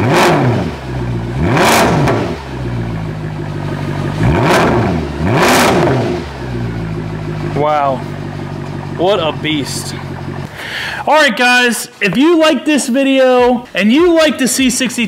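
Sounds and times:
engine throttle blips: 0.0 - 11.0
car engine idling: 0.0 - 12.6.

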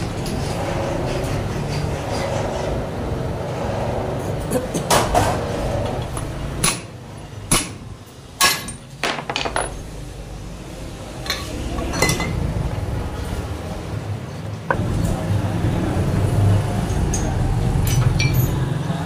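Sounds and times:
metallic clinks of steel parts: 16.9 - 18.6.

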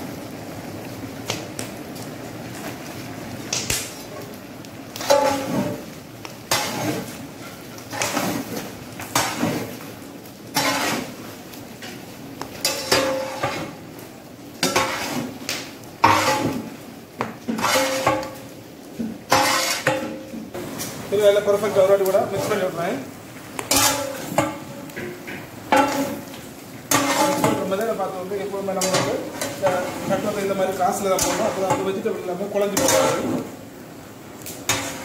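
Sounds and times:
metal paddle scraping metal pot: 5.0 - 5.9, 6.5 - 9.8, 10.5 - 11.2, 12.6 - 13.8, 14.6 - 15.4, 16.0 - 16.7, 17.5 - 18.4, 19.2 - 20.3, 23.6 - 27.8, 28.7 - 32.0, 32.6 - 33.5, 34.6 - 35.0.

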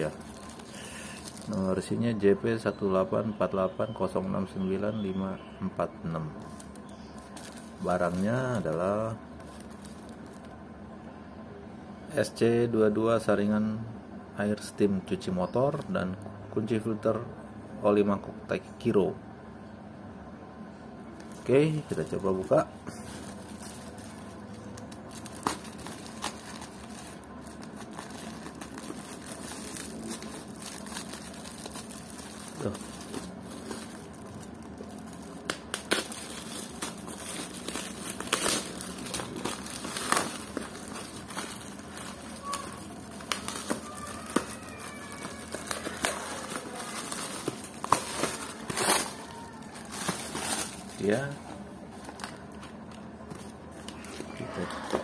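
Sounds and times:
plastic bag and tape crinkling: 0.0 - 2.0, 6.4 - 10.6, 21.2 - 55.0.

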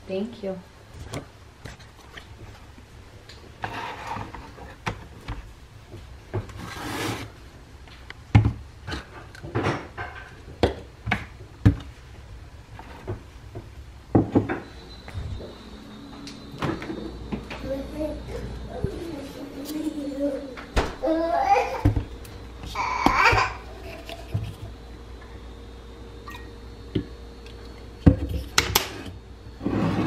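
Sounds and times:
objects clattering on kitchen counter: 8.4 - 11.8
steady high tone: 14.7 - 20.6.

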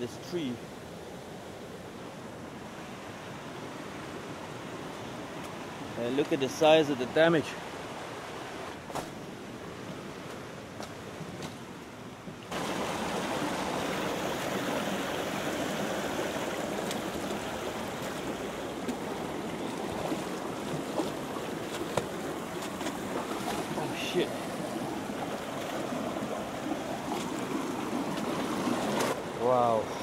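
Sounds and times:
stream rushing over rocks: 12.4 - 30.0
splashing steps wading in water: 12.5 - 29.2.

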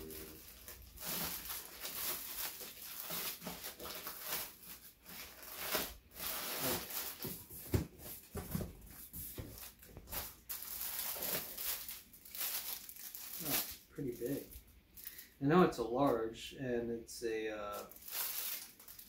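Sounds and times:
plastic bags crinkling: 0.0 - 7.4, 9.3 - 15.3, 17.7 - 19.0.

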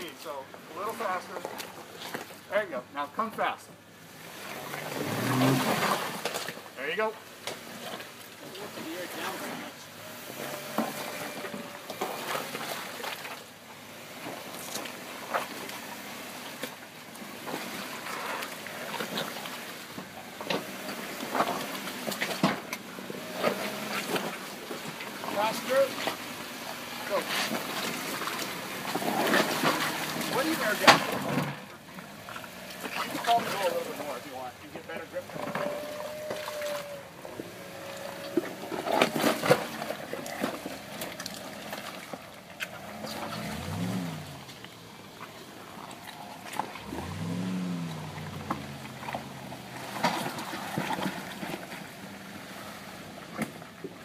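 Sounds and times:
tires churning through mud: 0.0 - 54.0
engine running low and steady: 3.7 - 54.0
mud splattering: 4.4 - 6.7, 20.6 - 53.9.

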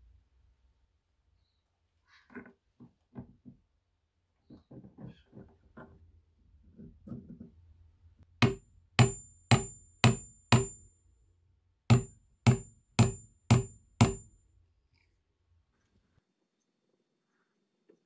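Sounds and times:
hammer striking steel rods: 8.4 - 10.9, 11.9 - 14.4.

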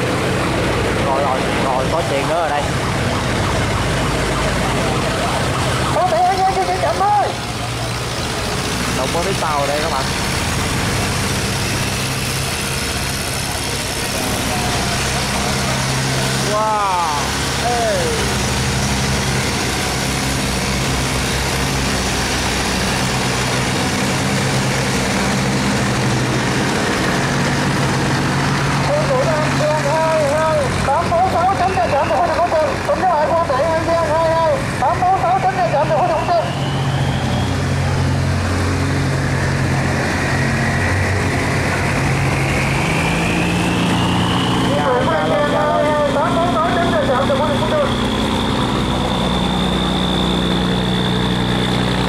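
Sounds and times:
boat engine humming: 0.0 - 52.0
churning water: 0.0 - 52.0
thin high whine: 35.2 - 52.0.

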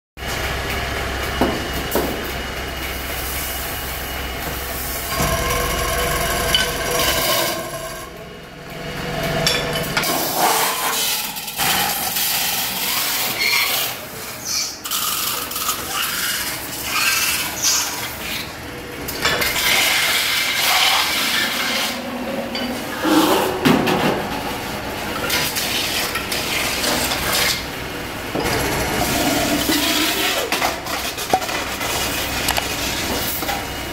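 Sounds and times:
lathe motor hum: 0.3 - 10.3, 24.4 - 31.0
tool scraping and squealing on metal: 5.0 - 8.1, 10.1 - 18.5.

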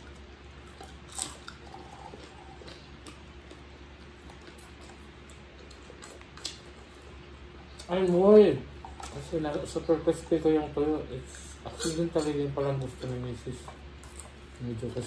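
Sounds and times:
close chewing: 0.0 - 15.0
fingers and food clicking on plates: 11.4 - 15.0.

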